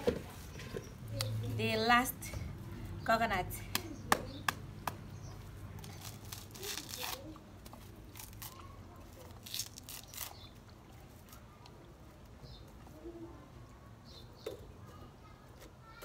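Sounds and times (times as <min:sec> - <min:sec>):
crackling and scraping on shell: 0:05.8 - 0:11.8.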